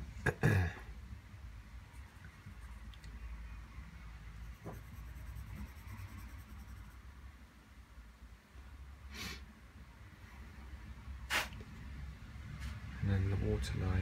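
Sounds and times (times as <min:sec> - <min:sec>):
pencil scratching on paper: 0:04.4 - 0:07.1
short sharp hiss: 0:11.3 - 0:11.6.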